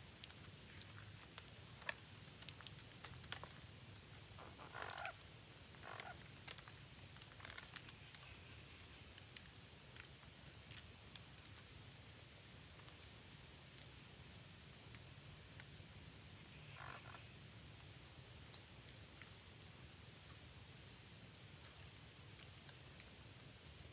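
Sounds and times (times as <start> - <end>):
birds rustling on branches: 0.0 - 23.9
soft bird calls: 4.2 - 9.2, 16.4 - 17.5.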